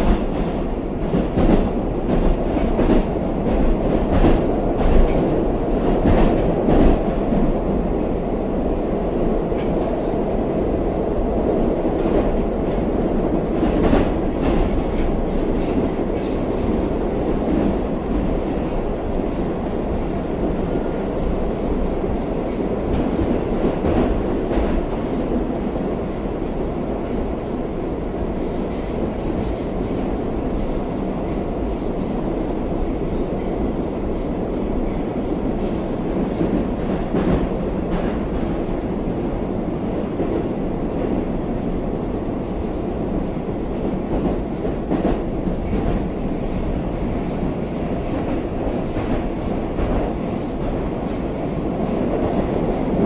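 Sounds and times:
train wheels clacking: 0.0 - 7.6, 11.9 - 19.5, 34.8 - 38.7
metro train rumbling: 0.0 - 53.0.

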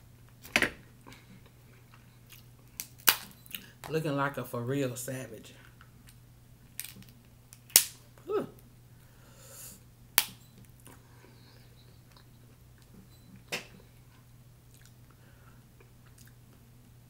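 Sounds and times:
crab shells cracking: 2.4 - 3.3, 6.0 - 8.0.

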